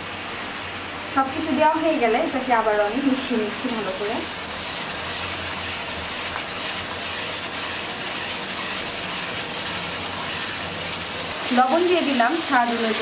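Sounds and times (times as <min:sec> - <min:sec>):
spice paste sizzling and bubbling: 0:02.4 - 0:13.0
spatula stirring: 0:03.1 - 0:13.0.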